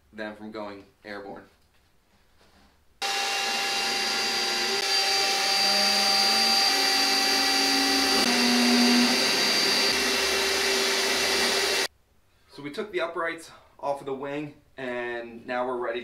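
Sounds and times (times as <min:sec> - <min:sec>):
drill boring: 0:03.0 - 0:11.9
handheld vacuum running: 0:03.0 - 0:11.9.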